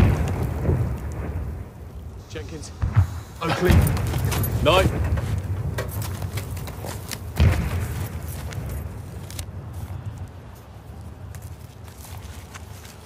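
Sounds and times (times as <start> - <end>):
artillery boom: 0.0 - 1.7, 2.7 - 6.4, 7.3 - 8.9.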